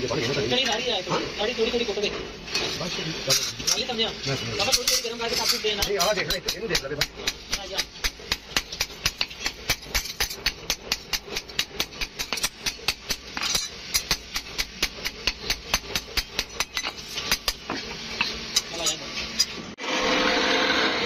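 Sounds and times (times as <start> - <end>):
hammer striking steel on anvil: 4.6 - 19.6.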